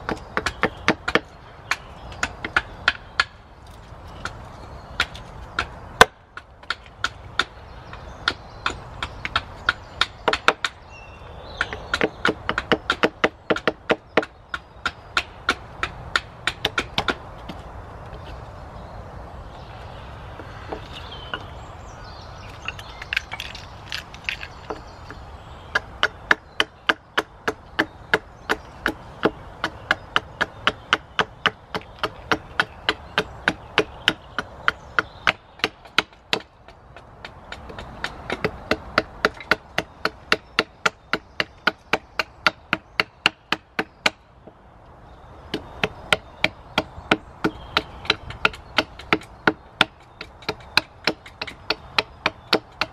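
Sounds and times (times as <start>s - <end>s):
axe chopping wood: 0.0s - 3.4s, 5.0s - 10.8s, 11.6s - 17.6s, 25.7s - 44.2s, 45.5s - 52.9s.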